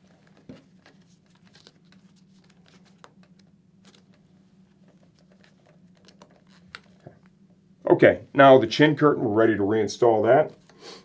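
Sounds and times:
hands rustling helmet padding: 0:00.0 - 0:07.2
low room hum: 0:00.0 - 0:11.0.

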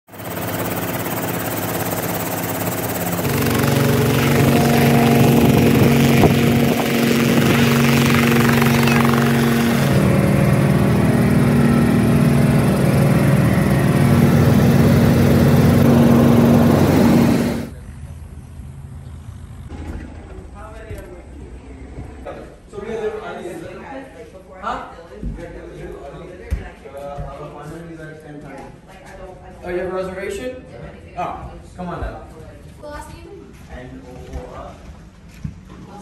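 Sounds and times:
helicopter engine and rotor: 0:00.1 - 0:17.8.

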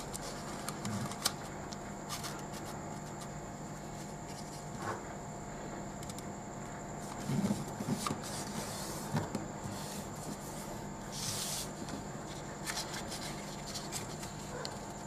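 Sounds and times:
paper rustling: 0:00.0 - 0:01.5, 0:02.1 - 0:03.3, 0:07.2 - 0:14.9
steady background hum: 0:00.0 - 0:15.0.

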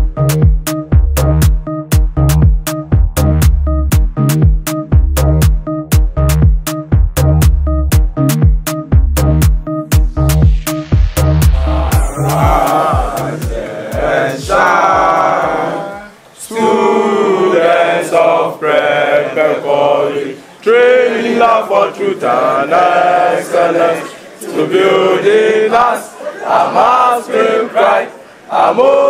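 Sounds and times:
bass beats of backing music: 0:00.0 - 0:16.2
group of voices singing: 0:11.4 - 0:29.0.

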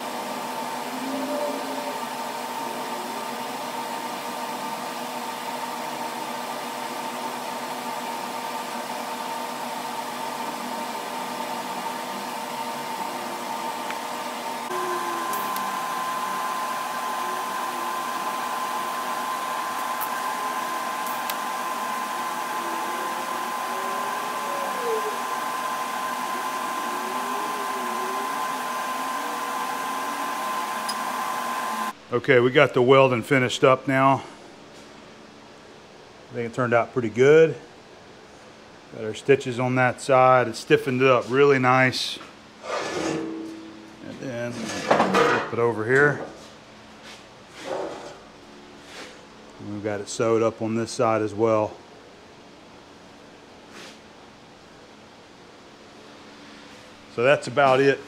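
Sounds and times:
welding arc hissing: 0:14.7 - 0:31.9.

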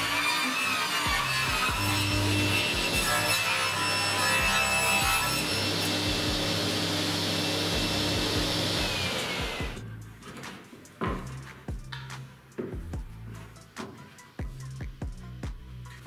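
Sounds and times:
table saw ripping a board: 0:00.0 - 0:10.6
saw blade winding down whine: 0:04.4 - 0:09.8.

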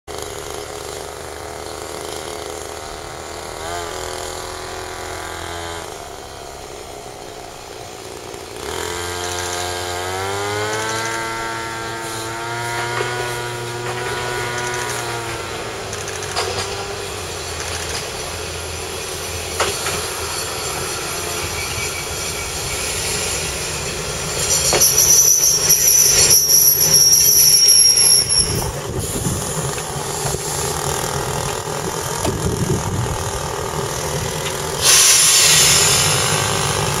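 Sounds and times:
diesel railcar engine: 0:00.1 - 0:37.0
wheels and brakes squealing: 0:10.7 - 0:31.7, 0:34.0 - 0:37.0.

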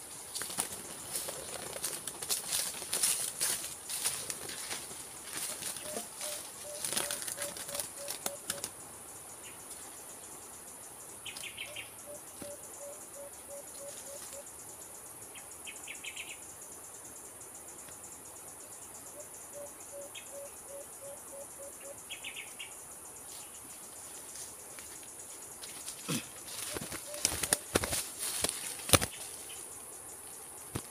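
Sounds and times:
bird flapping against wire trap: 0:00.4 - 0:04.6, 0:05.4 - 0:08.7, 0:26.6 - 0:29.2
dove hooting: 0:05.3 - 0:08.7, 0:11.6 - 0:14.5, 0:19.1 - 0:22.0, 0:26.1 - 0:28.0.

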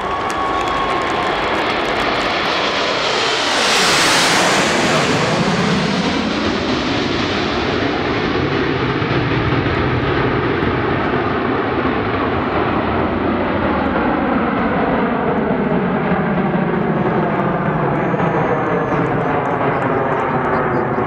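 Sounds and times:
jet aircraft flying away: 0:00.0 - 0:21.0.

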